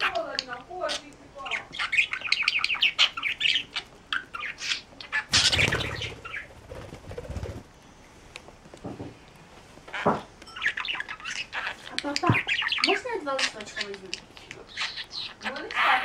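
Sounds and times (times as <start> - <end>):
budgerigar chirping: 0.0 - 6.6, 10.7 - 16.0
wings flapping: 5.3 - 7.7.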